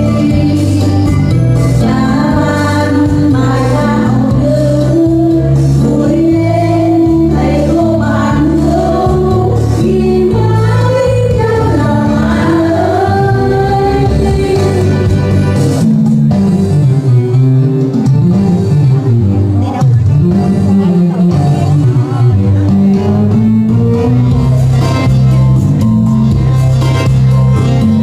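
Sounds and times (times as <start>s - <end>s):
song with sung vocal melody: 0.0s - 16.4s.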